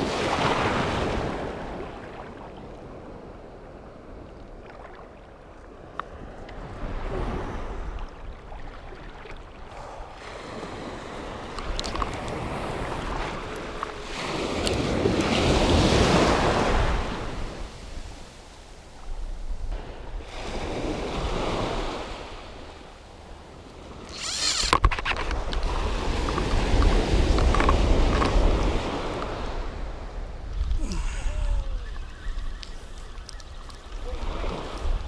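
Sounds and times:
small sea waves breaking: 0.0 - 35.0
wind rumbling on microphone: 0.0 - 35.0.

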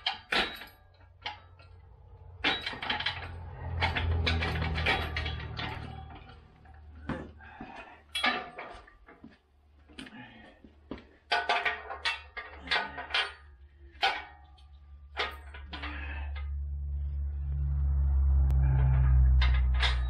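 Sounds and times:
metal parts clanking and rattling: 0.0 - 10.3, 11.0 - 16.8, 18.6 - 20.0
low rumble: 1.6 - 7.6, 15.7 - 20.0.

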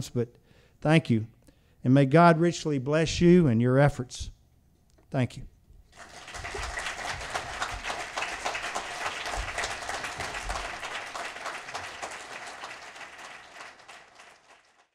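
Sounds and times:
audience applauding: 5.9 - 14.9.

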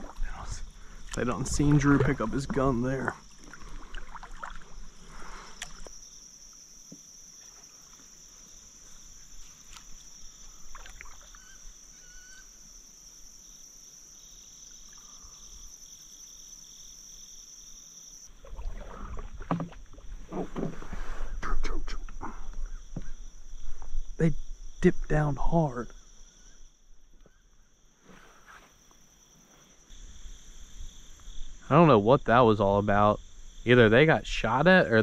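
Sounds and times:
faint paddle and water sounds: 0.0 - 13.0, 18.0 - 30.1
high-pitched insect chorus: 0.0 - 35.0.

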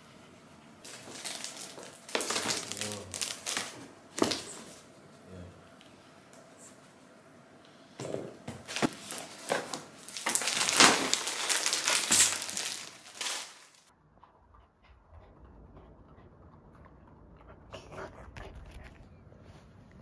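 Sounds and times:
bags rustling and crinkling: 0.8 - 4.8, 8.5 - 13.9.

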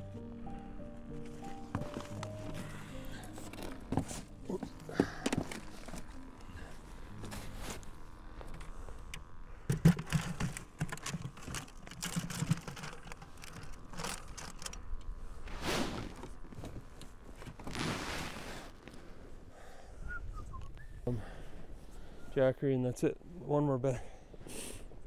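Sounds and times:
clicks and knocks of gear: 8.4 - 15.1.

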